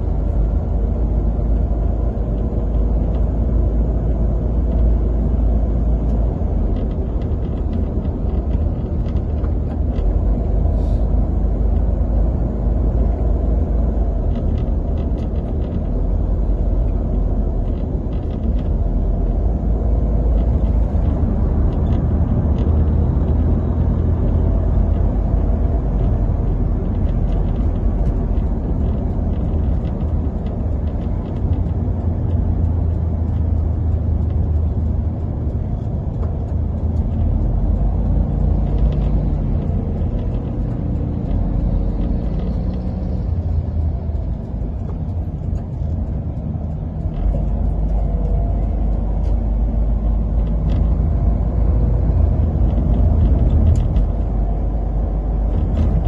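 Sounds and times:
road noise: 0:00.0 - 0:56.0
vehicle engine rumble: 0:00.0 - 0:56.0.

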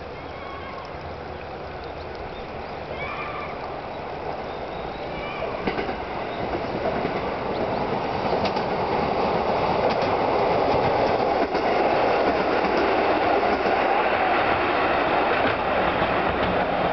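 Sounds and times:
wheels clicking over rail joints: 0:03.9 - 0:16.9
diesel railcar rumbling past: 0:04.5 - 0:16.9.

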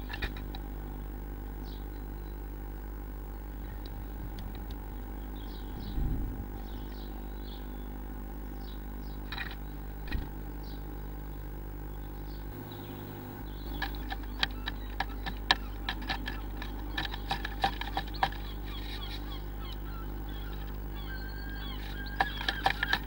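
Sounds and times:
low electrical hum: 0:00.0 - 0:23.0
bird taps on wooden nest box: 0:13.7 - 0:19.8, 0:21.8 - 0:23.0.

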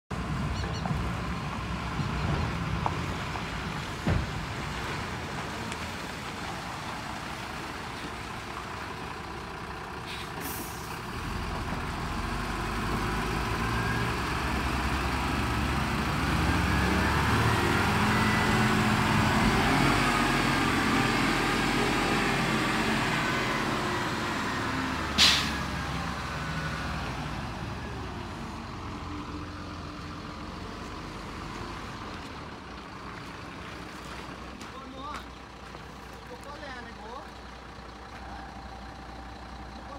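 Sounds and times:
truck diesel engine passing: 0:00.1 - 0:39.9
air brakes hissing: 0:10.1 - 0:11.0, 0:25.2 - 0:25.6.

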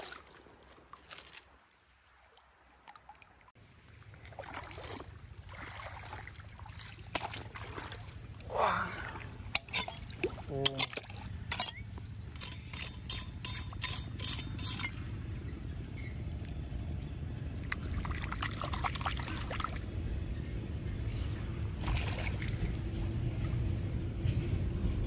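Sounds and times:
stream water splashing and trickling: 0:00.0 - 0:20.1, 0:21.1 - 0:24.0
steady low rumble: 0:08.1 - 0:25.0
hoe scraping through gravel: 0:11.5 - 0:15.0.

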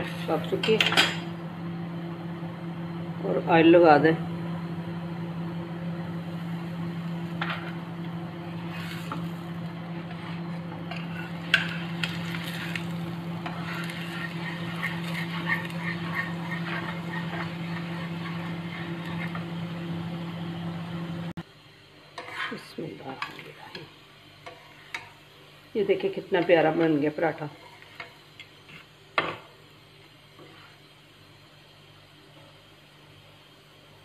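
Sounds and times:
steady low hum: 0:00.0 - 0:26.7
oil sizzling on a hot pan: 0:06.0 - 0:34.0
metal spatula scraping pan: 0:10.1 - 0:19.6, 0:22.2 - 0:23.4.

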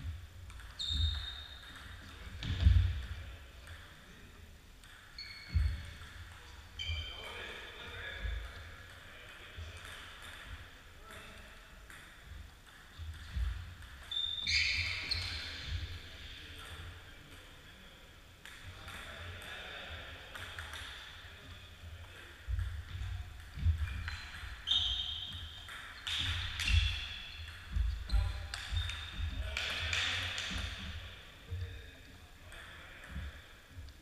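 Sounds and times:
shoes squeaking on floor: 0:00.7 - 0:02.9, 0:05.2 - 0:06.0, 0:06.7 - 0:07.4, 0:13.2 - 0:16.1, 0:22.8 - 0:30.6.

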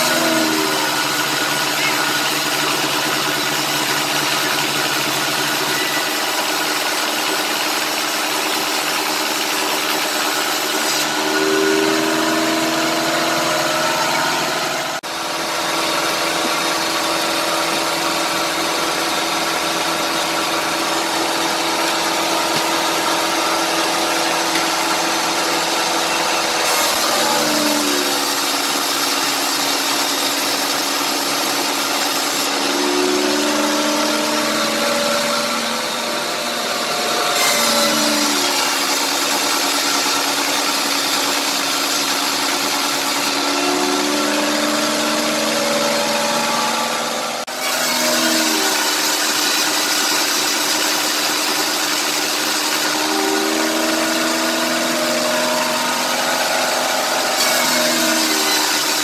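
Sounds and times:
band sawmill whining and humming: 0:00.0 - 0:59.0.

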